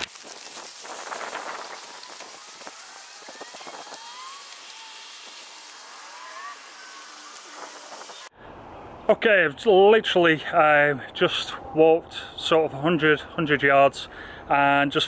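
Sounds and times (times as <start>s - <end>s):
steady hiss: 0.0s - 8.3s.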